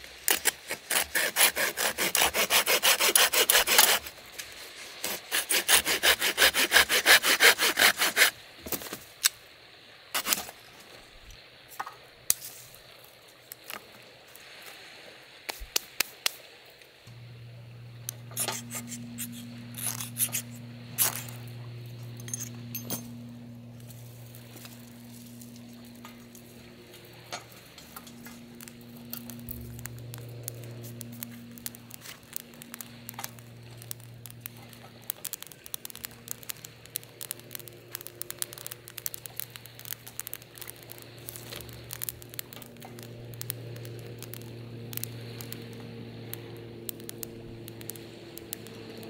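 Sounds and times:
tinder crackling: 0:00.0 - 0:49.0
steady low hum: 0:17.0 - 0:49.0
dry twigs snapping: 0:17.9 - 0:49.0.

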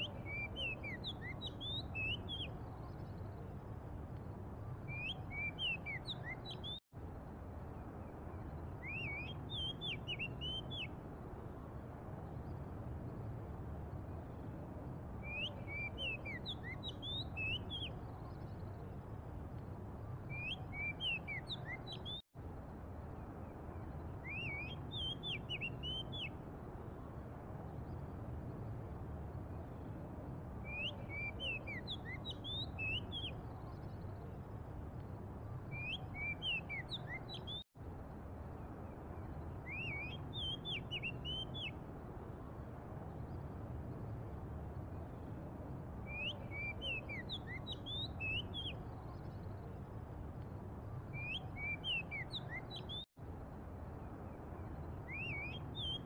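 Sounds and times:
bird singing whistled notes: 0:00.0 - 0:03.4, 0:04.8 - 0:06.8, 0:08.3 - 0:11.0, 0:15.2 - 0:18.8, 0:20.2 - 0:22.2, 0:23.8 - 0:26.4, 0:30.6 - 0:34.3, 0:35.6 - 0:37.6, 0:39.2 - 0:41.8, 0:46.0 - 0:49.8, 0:51.1 - 0:53.1, 0:54.6 - 0:56.0.

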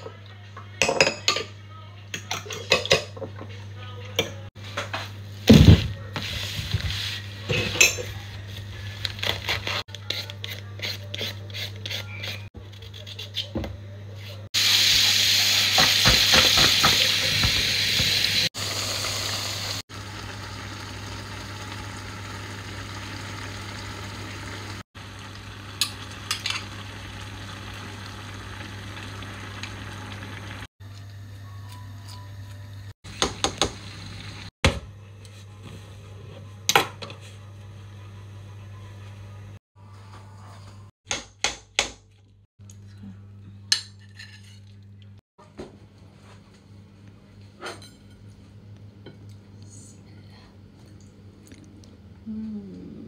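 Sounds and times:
food sizzling in a pan: 0:14.6 - 0:30.7.

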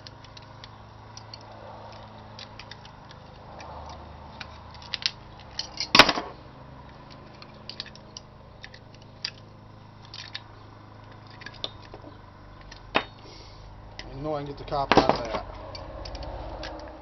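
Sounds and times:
cutters clicking and snapping: 0:00.0 - 0:06.2, 0:06.8 - 0:13.1, 0:13.9 - 0:17.0.

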